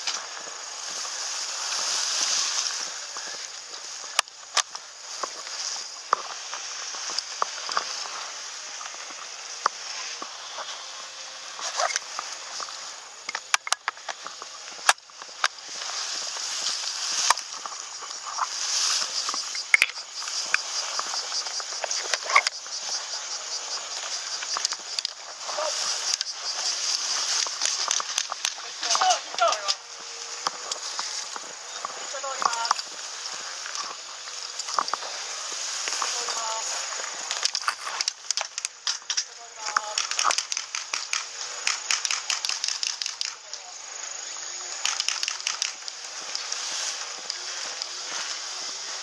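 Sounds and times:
high-pitched insect chorus: 0.0s - 49.0s
rustling of tall grass: 0.0s - 49.0s
sharp clicks: 13.2s - 14.2s, 19.3s - 21.1s, 24.4s - 25.2s, 26.0s - 29.8s, 37.2s - 43.6s, 44.7s - 46.6s.

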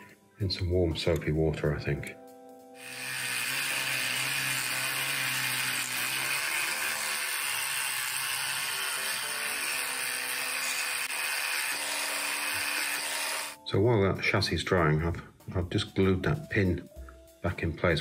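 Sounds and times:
electric toothbrush buzzing whir: 2.8s - 13.6s.

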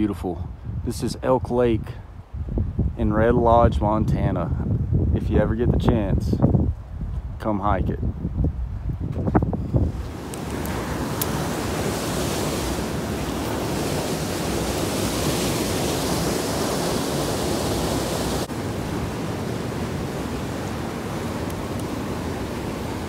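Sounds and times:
stream rushing over rocks: 9.8s - 23.0s.

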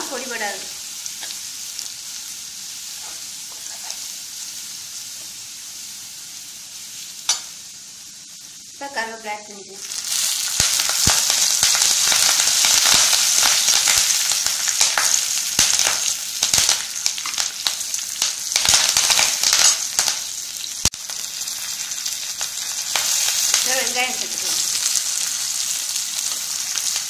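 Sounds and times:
spices sizzling in hot oil: 0.0s - 27.0s
spoon stirring pan: 3.0s - 4.1s.

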